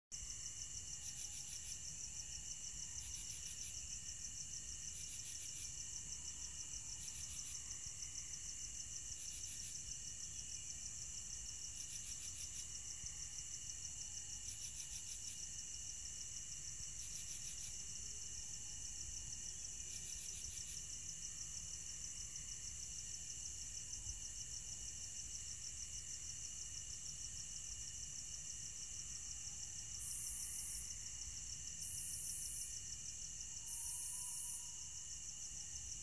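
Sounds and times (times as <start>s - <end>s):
crickets trilling: 0.2s - 36.0s
pulsed insect chirps: 33.6s - 34.8s.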